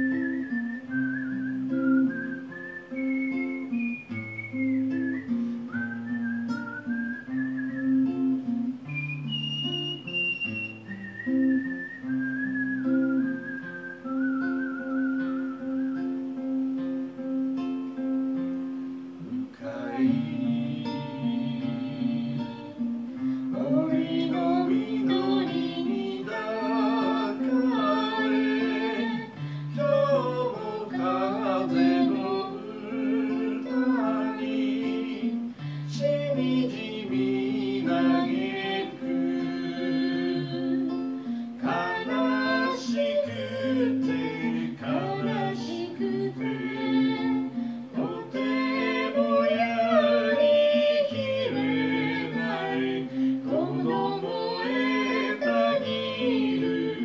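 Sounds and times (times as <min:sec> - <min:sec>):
acoustic guitar: 0:00.0 - 0:57.0
man singing: 0:19.3 - 0:22.8, 0:23.6 - 0:40.9, 0:41.6 - 0:57.0.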